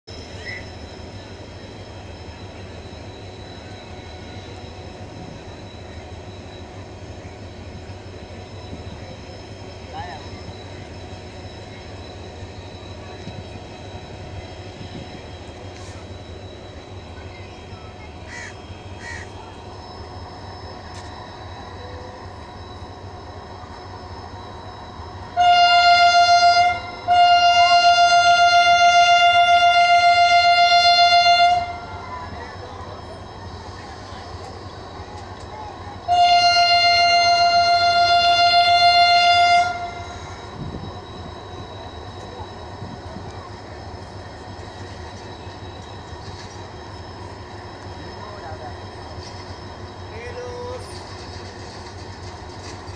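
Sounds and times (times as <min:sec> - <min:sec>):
locomotive engine rumbling: 0:00.1 - 0:52.9
locomotive air horn blasts: 0:25.3 - 0:32.0, 0:36.1 - 0:40.2.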